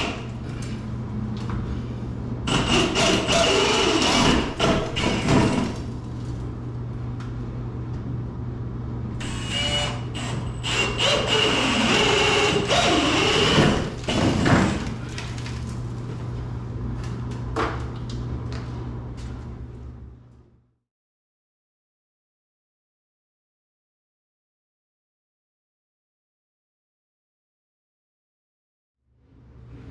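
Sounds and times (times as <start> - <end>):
drill boring through wood: 2.5 - 5.7, 9.2 - 14.7.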